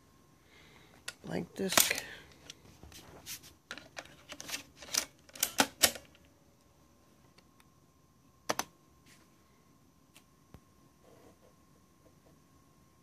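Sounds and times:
plastic clicks of floppy disks: 8.5s - 8.7s.

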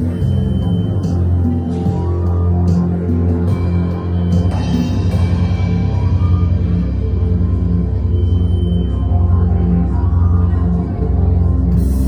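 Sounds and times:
heavy low bass line: 0.0s - 12.0s.

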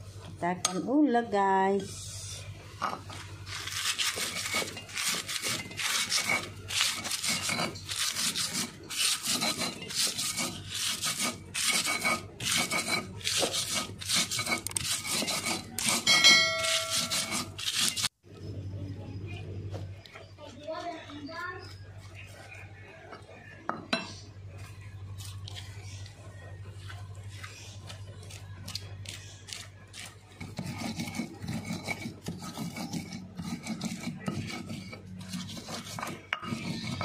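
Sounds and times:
stone pestle grinding: 2.9s - 18.1s, 28.3s - 37.0s.

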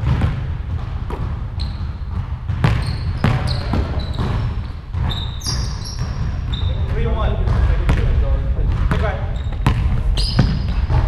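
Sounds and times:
basketball bouncing on hardwood: 0.0s - 11.0s
sneaker squeaks: 1.1s - 7.3s, 8.9s - 11.0s.

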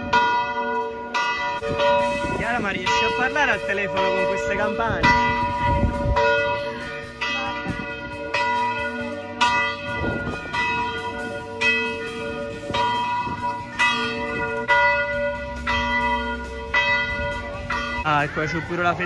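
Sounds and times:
church bells ringing: 0.0s - 19.0s.

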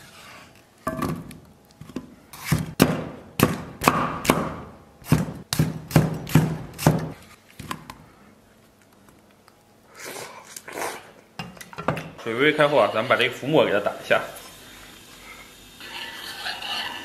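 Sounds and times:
cleaver chopping on wood: 2.6s - 7.2s.

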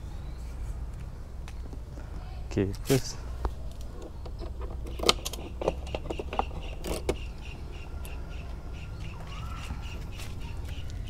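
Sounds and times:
sharp clicks and plastic knocks: 3.8s - 7.3s.

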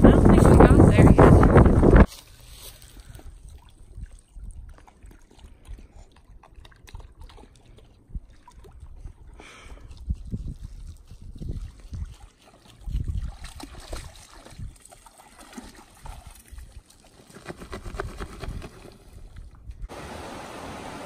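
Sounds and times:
wind on microphone: 0.0s - 2.1s, 8.1s - 14.8s
dog splashing in water: 10.6s - 17.6s
flowing water rushing: 19.9s - 21.0s.

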